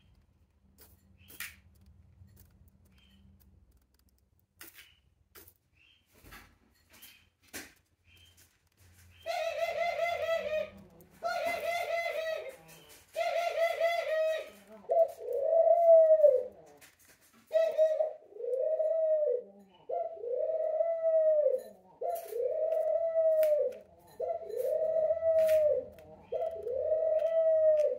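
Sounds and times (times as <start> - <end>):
faint clicks: 0.0 - 5.7, 10.7 - 11.3
dove cooing: 9.2 - 27.9.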